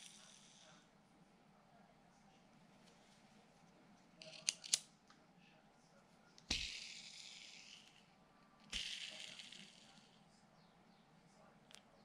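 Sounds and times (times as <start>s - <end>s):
pen clicks: 4.2s - 4.8s.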